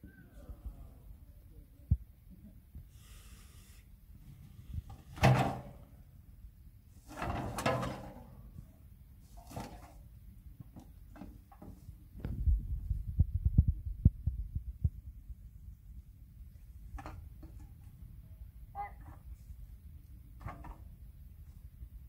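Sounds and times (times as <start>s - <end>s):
rubbish bin knocking and clattering: 5.0s - 5.9s, 7.1s - 8.4s.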